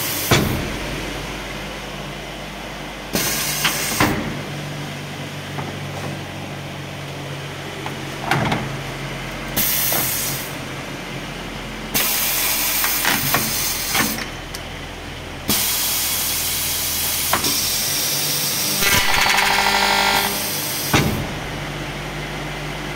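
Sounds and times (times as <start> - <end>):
pneumatic cylinders clunking: 0.0 - 1.0, 3.1 - 4.7, 7.8 - 8.9, 9.6 - 10.6, 11.9 - 14.7, 15.5 - 21.6
air hiss bursts: 3.1 - 4.3, 9.6 - 10.6, 12.0 - 14.2, 15.5 - 19.1, 20.1 - 21.2
motor hum: 14.7 - 22.9
cutter buzzing through plastic: 18.8 - 20.6.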